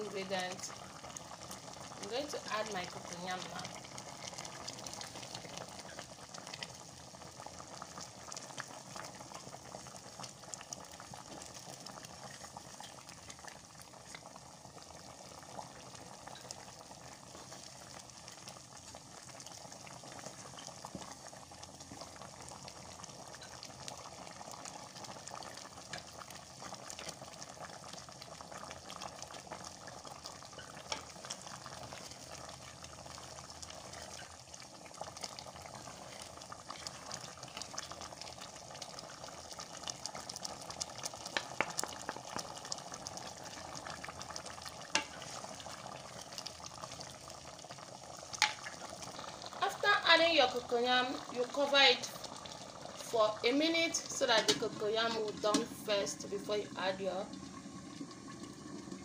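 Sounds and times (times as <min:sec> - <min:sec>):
soup bubbling in a pot: 0:00.0 - 0:59.0
wooden spoon stirring: 0:30.5 - 0:38.1, 0:44.9 - 0:45.8.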